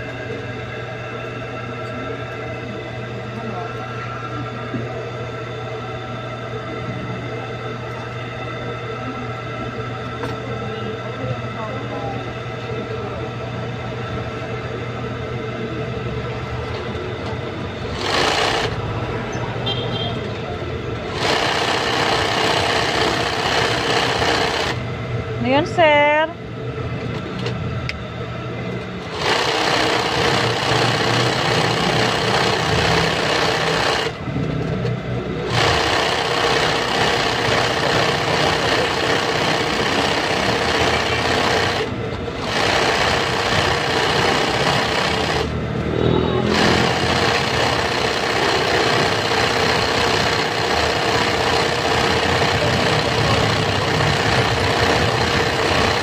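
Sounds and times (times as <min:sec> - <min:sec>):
sewing machine stitching: 0:17.9 - 0:18.8, 0:21.1 - 0:24.8, 0:29.1 - 0:34.2, 0:35.5 - 0:45.6, 0:46.4 - 0:56.0.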